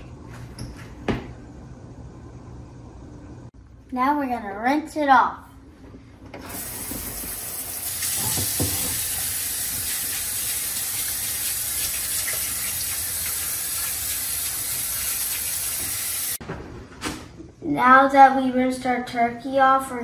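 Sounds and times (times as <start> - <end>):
faucet water rushing into sink: 6.5 - 16.4.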